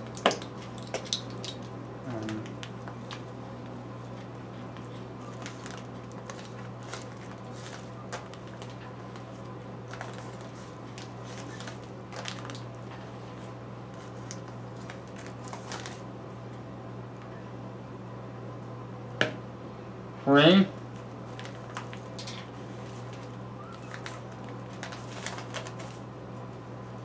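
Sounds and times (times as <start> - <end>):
plastic bag crinkling: 0.0 - 3.4, 4.1 - 16.1, 21.0 - 26.0
steady low hum: 0.0 - 27.0.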